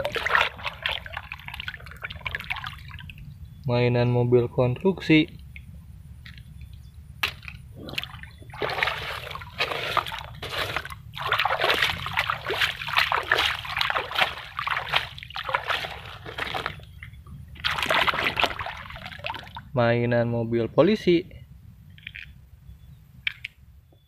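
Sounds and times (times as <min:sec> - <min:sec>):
hand splashing stream water: 0:00.0 - 0:03.0, 0:07.9 - 0:17.0, 0:17.6 - 0:19.6.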